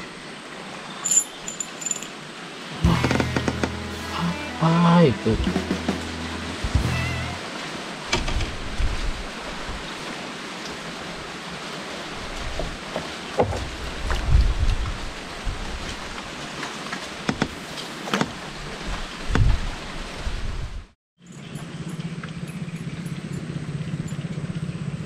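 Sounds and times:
river water rushing: 0:00.0 - 0:20.2
wind with low rumbles: 0:07.7 - 0:17.6, 0:18.2 - 0:25.0
clicks and knocks in wooden boat: 0:12.5 - 0:14.8, 0:16.6 - 0:18.4.

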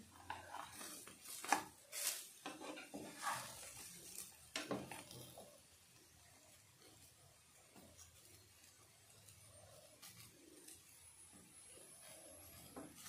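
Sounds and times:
spatula scraping frying pan: 0:00.0 - 0:05.6.

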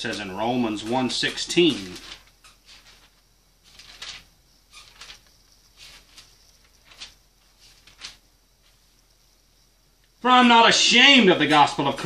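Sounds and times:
pages turning: 0:00.1 - 0:08.8.

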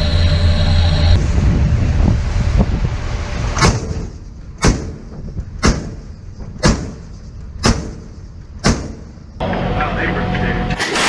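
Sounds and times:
wind and sea noise: 0:01.2 - 0:06.6.

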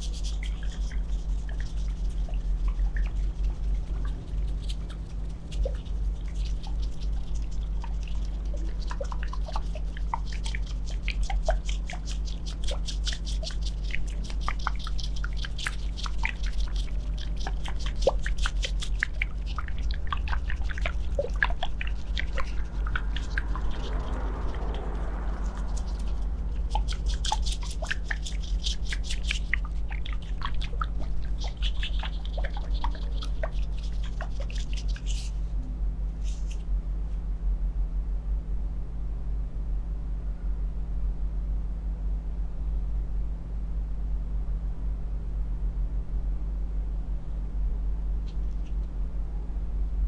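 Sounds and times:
globes clicking and tapping on skin: 0:00.0 - 0:35.3
steady low hum: 0:00.0 - 0:50.0.

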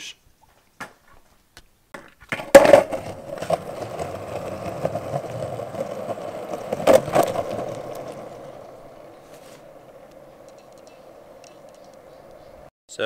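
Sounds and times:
longboard clacking on concrete: 0:02.0 - 0:09.1
longboard wheels rolling on pavement: 0:02.0 - 0:12.7.

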